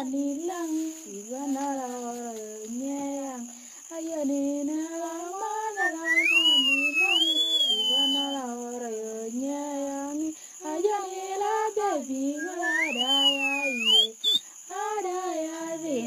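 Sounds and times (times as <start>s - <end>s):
woman singing: 0.0s - 16.0s
high whistle-like gliding line: 5.7s - 8.4s, 12.4s - 14.4s.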